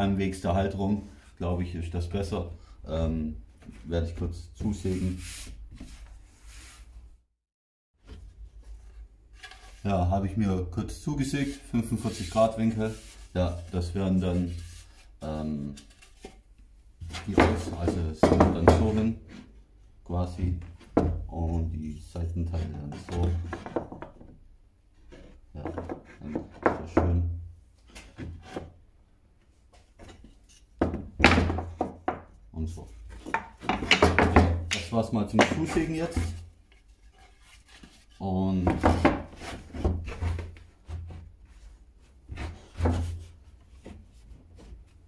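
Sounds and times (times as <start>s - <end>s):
wooden boards rubbing and knocking: 17.0s - 19.5s, 22.5s - 24.4s, 25.0s - 27.3s, 27.9s - 28.8s, 29.8s - 32.4s, 33.1s - 41.4s, 42.2s - 45.0s.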